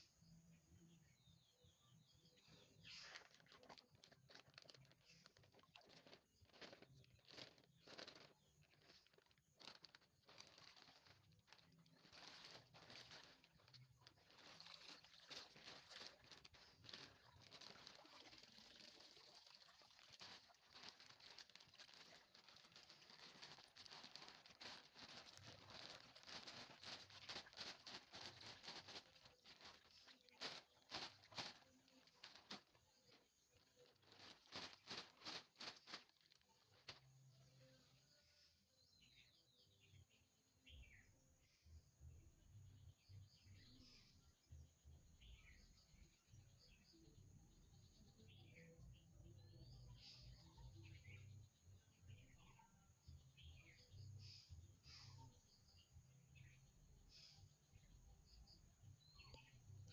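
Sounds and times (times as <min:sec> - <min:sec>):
small water splashes: 0:02.5 - 0:37.1
plastic bag crinkling: 0:02.8 - 0:37.1.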